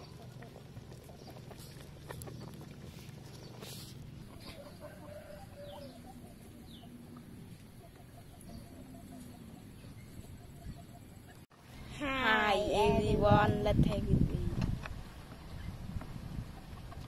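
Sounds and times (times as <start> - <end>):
chickens clucking softly: 0.0 - 11.4, 16.3 - 17.0.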